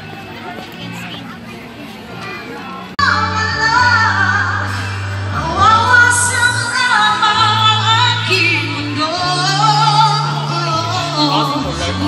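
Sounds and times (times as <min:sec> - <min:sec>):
held bass notes: 0:00.0 - 0:12.0
woman singing: 0:03.0 - 0:12.0.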